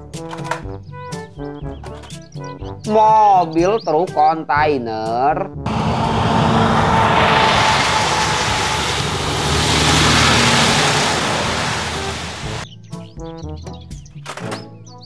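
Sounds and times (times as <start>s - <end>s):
truck driving past: 5.7s - 12.6s.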